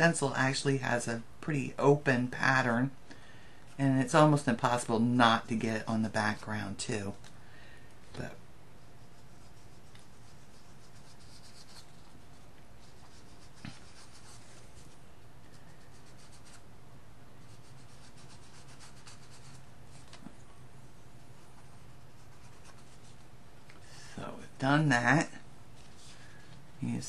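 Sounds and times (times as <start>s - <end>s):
steady low hum: 0.0s - 27.0s
fingertips rubbing on cardstock: 8.8s - 16.6s, 17.4s - 20.2s, 21.2s - 23.3s.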